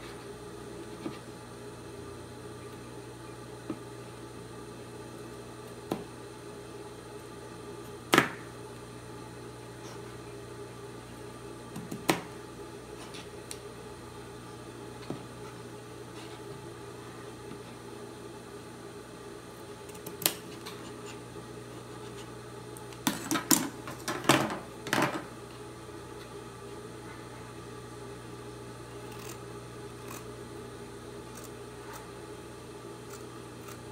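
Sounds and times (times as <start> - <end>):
steady low hum: 0.0 - 33.9
scissors snipping fabric: 29.0 - 29.4.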